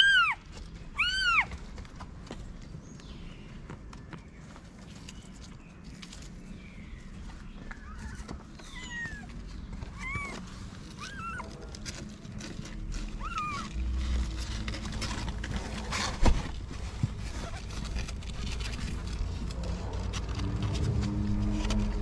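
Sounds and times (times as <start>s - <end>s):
kittens mewing: 0.0s - 1.6s, 7.8s - 11.8s, 13.0s - 13.9s.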